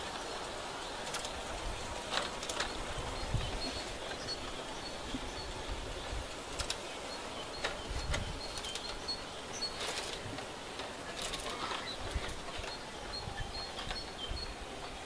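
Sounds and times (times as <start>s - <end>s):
small birds chirping: 0.0s - 15.0s
steady hiss: 0.0s - 15.0s.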